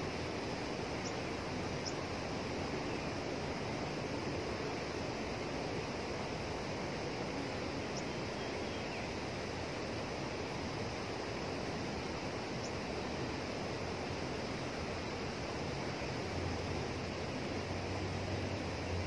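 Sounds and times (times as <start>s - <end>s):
turbulent water rushing: 9.1s - 19.0s.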